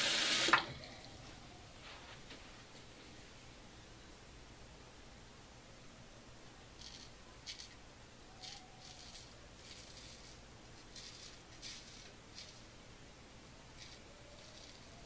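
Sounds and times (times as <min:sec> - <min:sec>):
razor scraping stubble: 0:08.4 - 0:12.7.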